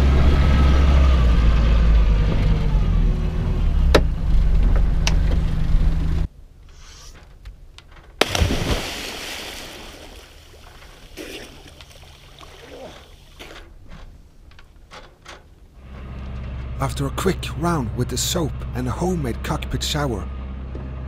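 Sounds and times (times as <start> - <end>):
low rumble: 0.0 - 6.3
water splashing down: 8.2 - 13.4.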